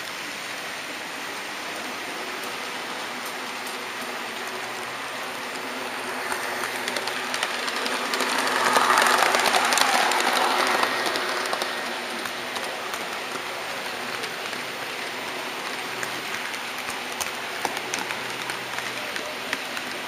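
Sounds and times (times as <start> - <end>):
model train rattling and clicking: 0.0 - 20.0
model train wheels hissing on rails: 0.0 - 20.0.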